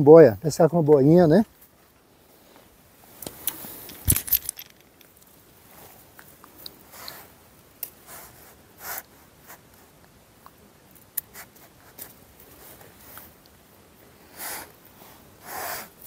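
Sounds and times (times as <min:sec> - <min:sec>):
fishing tackle clicks and rustles: 0:03.2 - 0:05.4.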